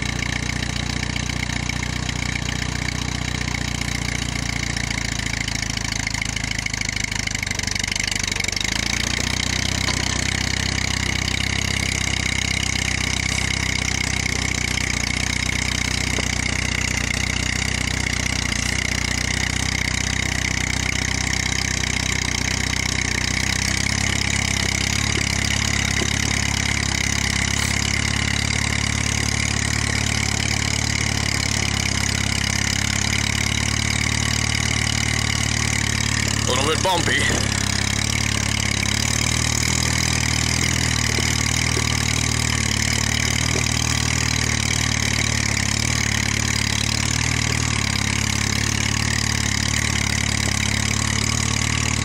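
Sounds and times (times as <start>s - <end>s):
tractor engine running: 0.0s - 52.0s.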